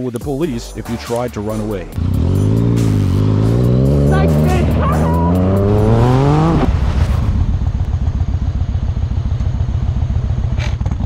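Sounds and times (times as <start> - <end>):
motorcycle engine revving: 1.9 - 11.0
motorcycle engine idling: 7.4 - 11.0.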